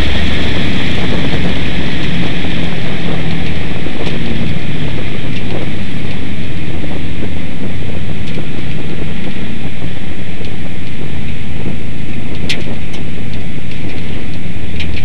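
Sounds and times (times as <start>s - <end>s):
race car engine running hard: 0.0s - 15.0s
wind buffeting microphone: 0.0s - 15.0s.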